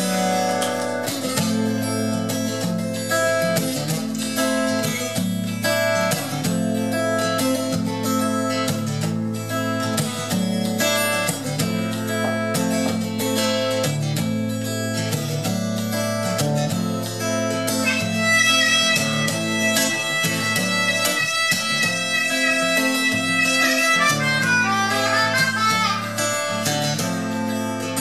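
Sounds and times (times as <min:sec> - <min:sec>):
acoustic guitar strumming: 0:00.0 - 0:28.0
harmonica playing: 0:17.7 - 0:27.5.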